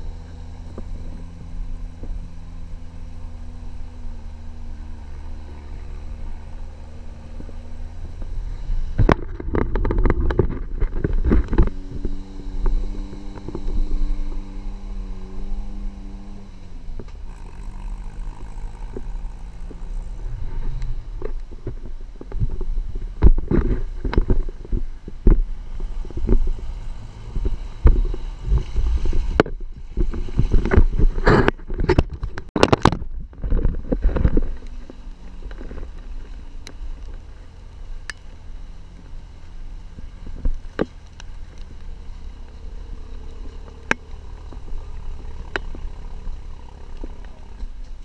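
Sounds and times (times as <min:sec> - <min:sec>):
engine and tyre rumble: 0:00.0 - 0:48.0
vehicle body knocking and rattling: 0:09.0 - 0:12.1.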